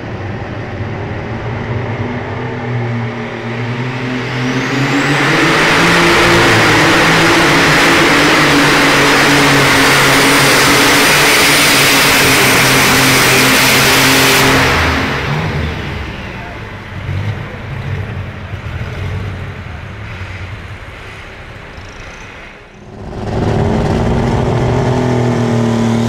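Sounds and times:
tractor engine at full throttle: 0.0s - 26.0s.

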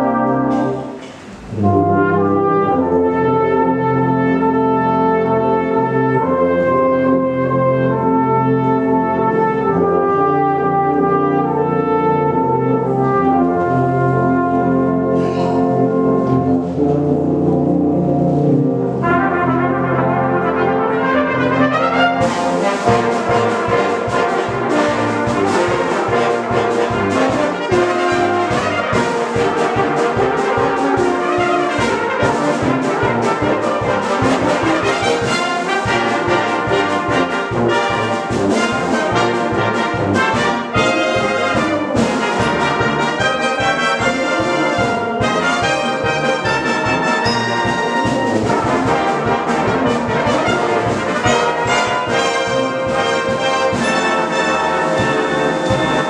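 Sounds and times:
brass band playing: 0.0s - 56.0s
percussion beat: 22.2s - 56.0s.

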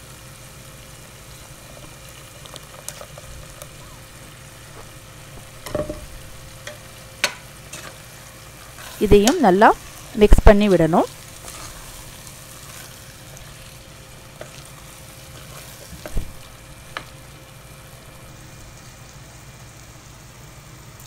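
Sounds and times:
food sizzling: 0.0s - 21.0s
spatula knocking against pot: 5.6s - 6.1s
wooden spatula stirring: 14.4s - 16.1s.

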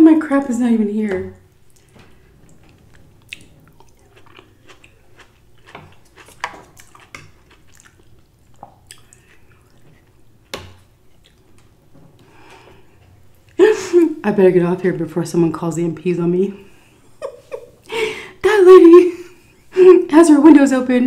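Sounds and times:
close-up chewing: 2.8s - 10.2s.

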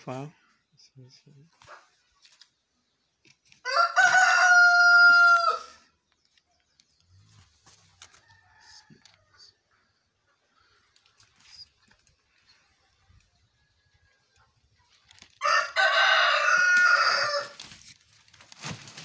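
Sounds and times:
rooster crowing: 3.6s - 5.8s, 15.4s - 17.6s.

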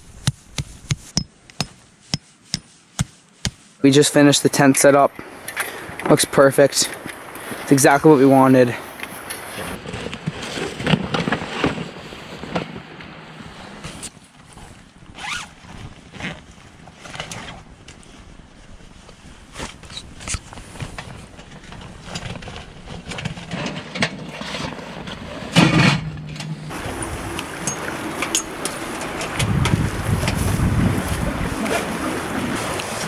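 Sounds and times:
nylon bags rustling: 14.2s - 18.4s.

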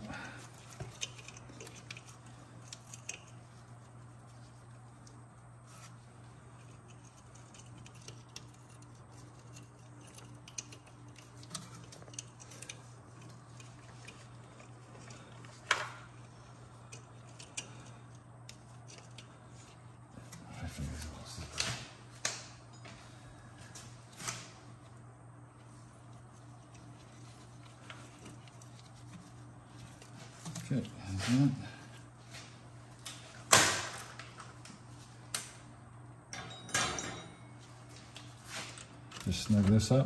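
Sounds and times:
steady low hum: 0.0s - 40.0s
clicks of tools and metal parts: 36.3s - 39.3s.

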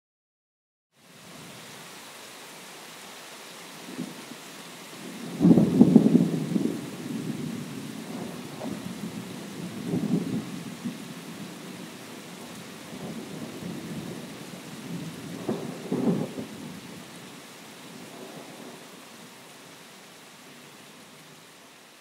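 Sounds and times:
rain on bus: 3.7s - 20.0s.

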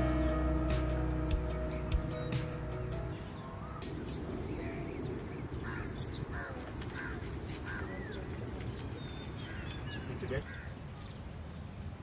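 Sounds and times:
crow cawing: 5.6s - 8.1s, 10.4s - 10.7s.

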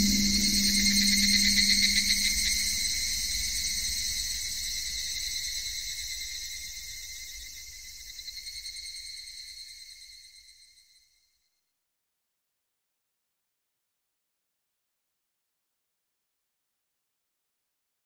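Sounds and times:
crickets trilling: 0.0s - 10.2s.

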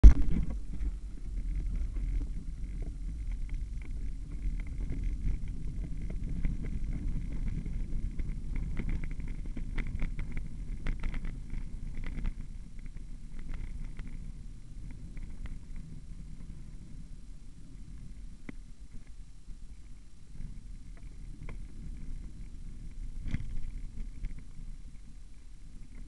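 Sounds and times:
bike rattling over bumps: 0.0s - 16.9s
bike tyres rumbling on dirt: 0.0s - 26.0s
wind on microphone: 0.0s - 26.0s.

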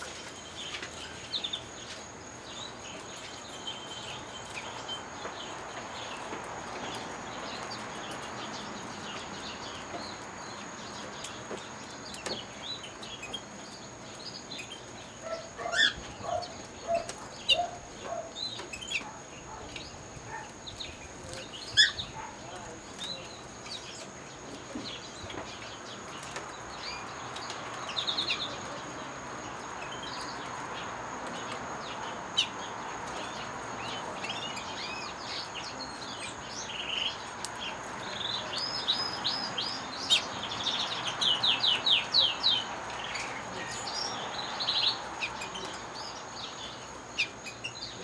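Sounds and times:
canaries chirping and singing: 0.0s - 48.0s.

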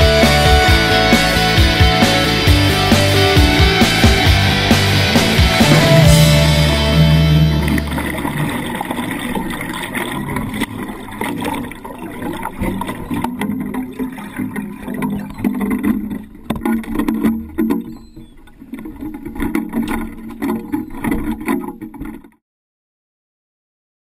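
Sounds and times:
water splashing against hull: 5.5s - 22.4s.

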